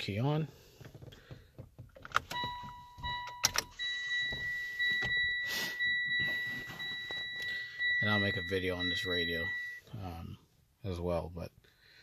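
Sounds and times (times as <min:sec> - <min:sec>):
car warning chime: 0:02.2 - 0:09.9.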